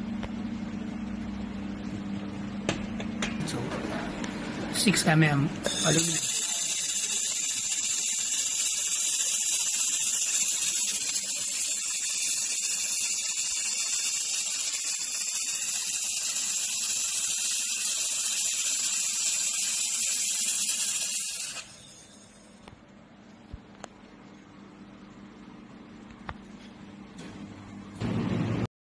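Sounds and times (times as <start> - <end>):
laser welding hiss: 5.7 - 22.4.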